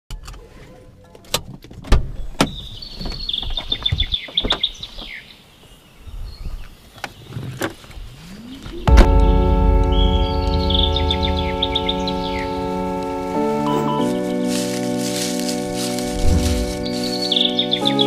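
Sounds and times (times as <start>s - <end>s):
bird chirping: 8.0s - 14.5s, 16.2s - 18.0s.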